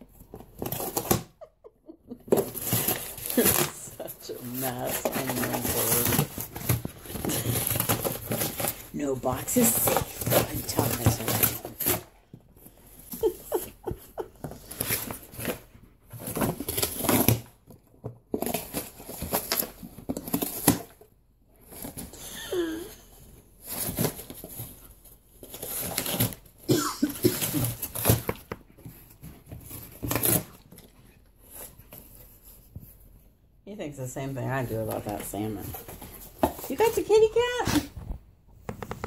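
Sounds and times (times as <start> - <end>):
dog ripping cardboard: 0.2 - 1.4, 2.2 - 22.2, 23.6 - 32.6.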